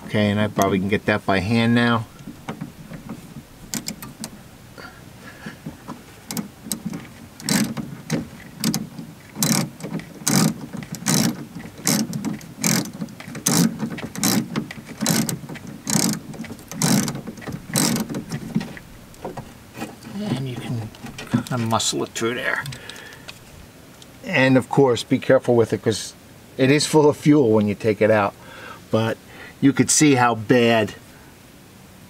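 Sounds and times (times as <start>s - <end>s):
ratchet wrench clicking: 3.7s - 4.4s, 6.3s - 7.8s, 9.4s - 18.4s.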